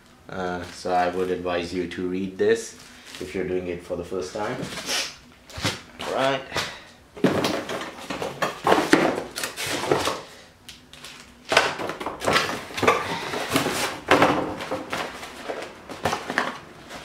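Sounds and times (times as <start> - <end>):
cardboard scraping and rustling: 7.2 - 10.3, 12.2 - 17.0.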